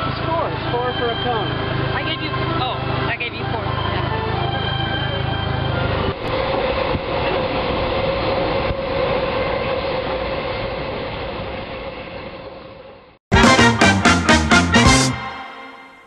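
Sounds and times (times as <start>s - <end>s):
train whine: 0.0s - 16.0s
train wheel and wind rush: 5.6s - 13.2s.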